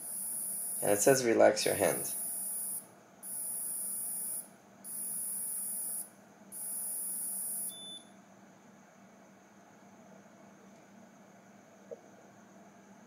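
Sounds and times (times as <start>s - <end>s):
high-pitched electronic whine: 0.0s - 8.0s
short low beep: 6.6s - 8.1s.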